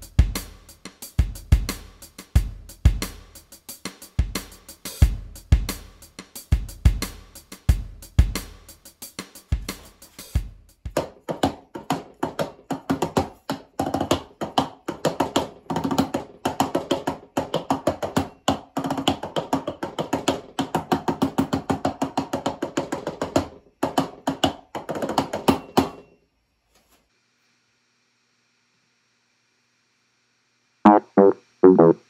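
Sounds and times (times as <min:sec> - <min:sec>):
synth bass notes: 0:30.9 - 0:32.0.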